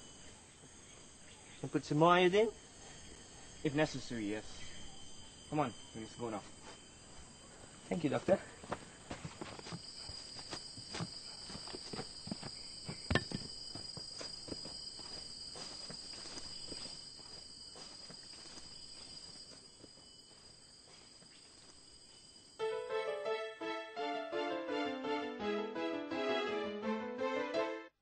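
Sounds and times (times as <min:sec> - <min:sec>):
insects chirring: 0:00.0 - 0:23.5
footsteps on ground: 0:08.6 - 0:20.4.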